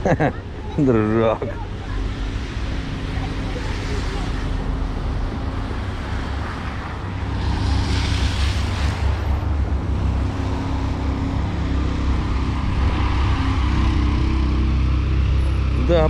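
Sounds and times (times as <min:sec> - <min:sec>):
traffic rumble: 0:00.0 - 0:16.0
tyre hiss on wet road: 0:07.4 - 0:09.4.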